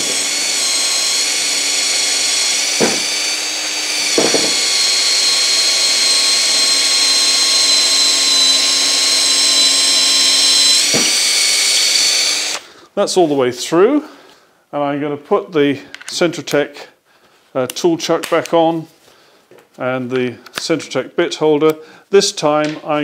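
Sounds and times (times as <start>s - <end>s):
cordless drill whining under load: 0.0s - 12.8s.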